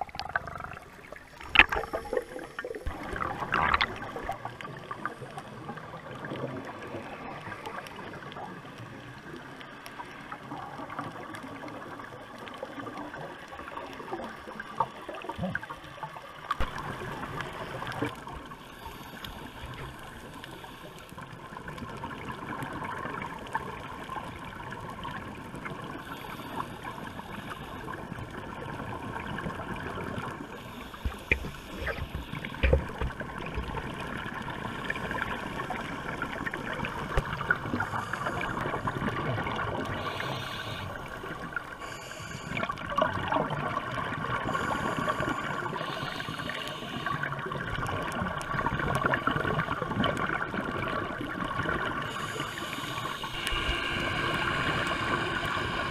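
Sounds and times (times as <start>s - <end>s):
muffled underwater water hiss: 0.0s - 55.9s
scuba exhaust bubbles: 0.0s - 55.9s.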